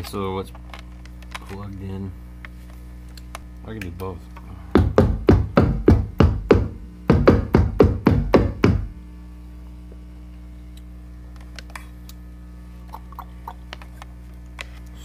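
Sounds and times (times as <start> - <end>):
low electrical hum: 0.0 - 15.0
deep percussive synth hits: 4.8 - 9.0.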